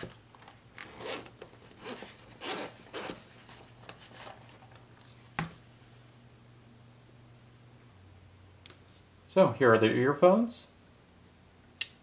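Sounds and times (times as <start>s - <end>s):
zipper unzipping: 0.8s - 3.2s.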